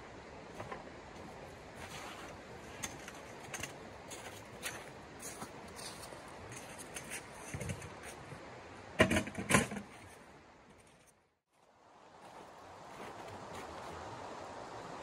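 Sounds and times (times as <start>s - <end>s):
river running over stones: 0.0s - 10.4s, 11.6s - 15.0s
camping gear rustling: 0.5s - 8.4s, 12.2s - 14.1s.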